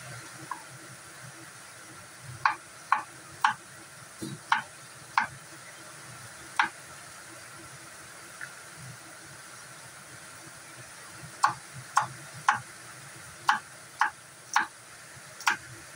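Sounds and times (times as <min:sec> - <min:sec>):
knife chopping on wooden board: 0:04.2 - 0:05.3.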